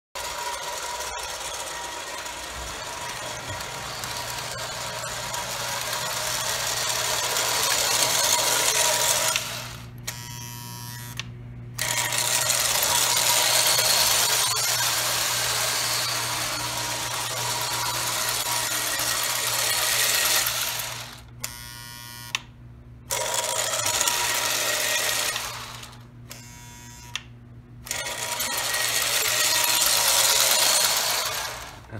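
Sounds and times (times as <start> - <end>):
toy train motor and gears whirring: 0.2 - 22.4, 23.1 - 27.2, 27.8 - 31.9.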